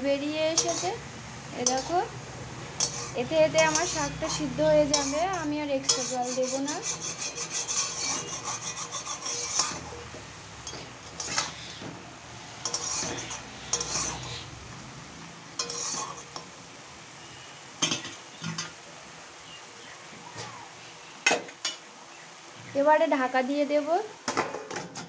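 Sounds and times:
soft sizzle of greens: 0.0 - 25.0
metal spatula scraping a pan: 0.5 - 1.0, 1.6 - 2.1, 2.7 - 14.6, 15.5 - 16.6.

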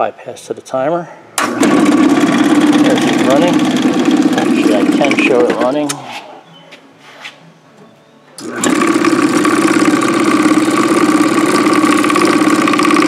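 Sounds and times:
mixer mill motor chattering: 1.4 - 6.0, 8.4 - 13.0.

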